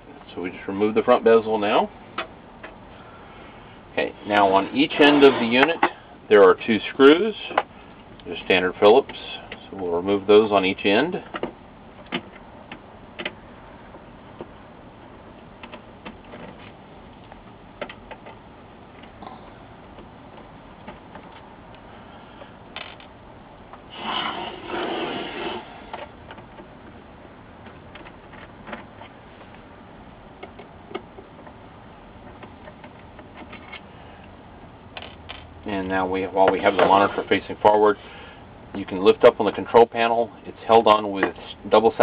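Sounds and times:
handling noise: 0:11.2 - 0:37.7.

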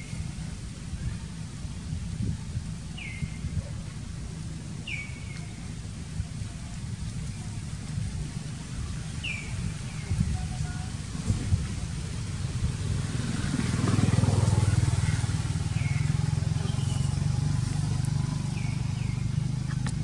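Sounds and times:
motor engine running: 0:00.0 - 0:20.0.

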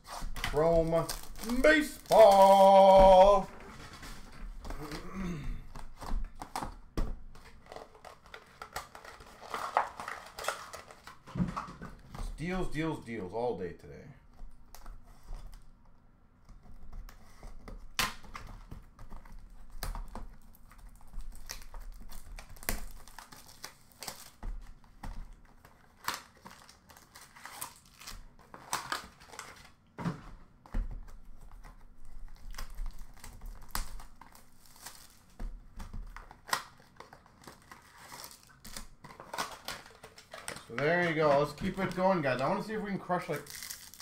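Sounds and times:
plastic wrappers crinkling and tearing: 0:00.0 - 0:06.6, 0:07.4 - 0:11.5, 0:18.1 - 0:29.8, 0:31.0 - 0:44.0
cardboard and cards snapping: 0:00.2 - 0:03.4, 0:16.6 - 0:42.6.

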